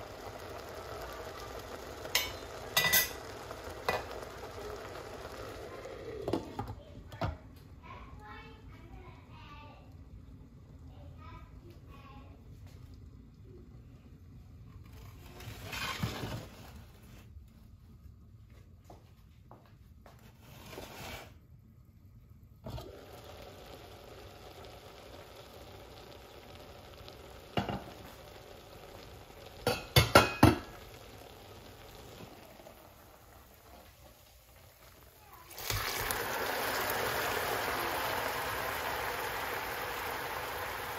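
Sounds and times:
stovetop hiss: 0:00.0 - 0:17.3, 0:22.5 - 0:40.9
metal cookware clinking: 0:02.1 - 0:03.3, 0:29.6 - 0:30.7.

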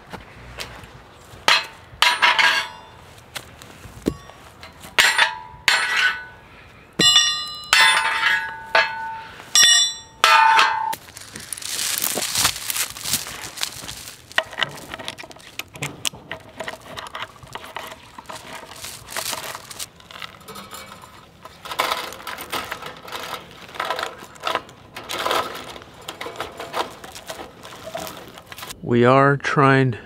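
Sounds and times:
steel chain clinking: 0:01.5 - 0:03.0, 0:07.0 - 0:15.6.

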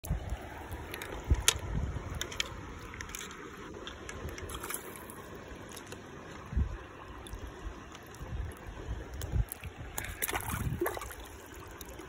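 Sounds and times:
wind on microphone: 0:00.0 - 0:03.2, 0:06.5 - 0:06.9, 0:08.2 - 0:11.3
stream water running over stones: 0:00.0 - 0:12.0.

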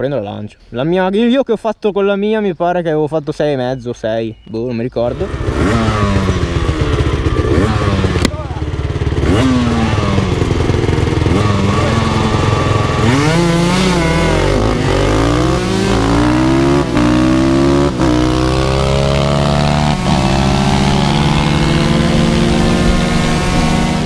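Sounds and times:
motorcycle engine accelerating: 0:05.0 - 0:24.0.

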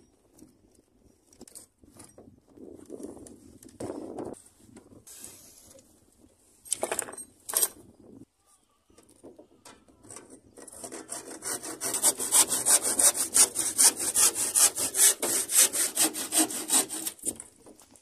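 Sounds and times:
handsaw cutting plywood: 0:10.6 - 0:17.4.

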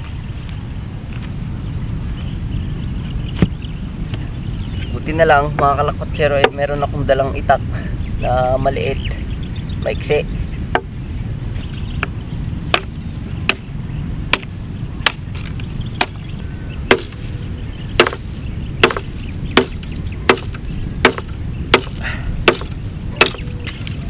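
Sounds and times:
knife chopping dry wood: 0:12.7 - 0:12.9, 0:13.5 - 0:13.7, 0:14.3 - 0:14.5, 0:15.1 - 0:16.2, 0:16.9 - 0:17.2, 0:18.0 - 0:23.4.

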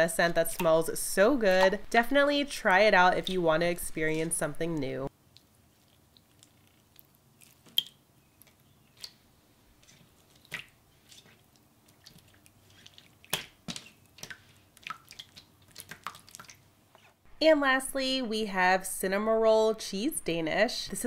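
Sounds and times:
slime squelching and popping: 0:05.3 - 0:09.2, 0:09.8 - 0:16.6.

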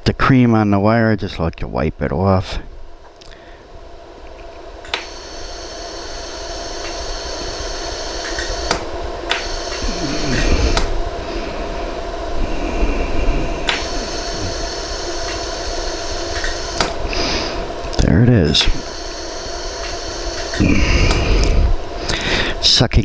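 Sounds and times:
machine hiss and hum: 0:00.0 - 0:23.0
laser welder pulse snaps: 0:04.3 - 0:11.0, 0:13.6 - 0:22.2.

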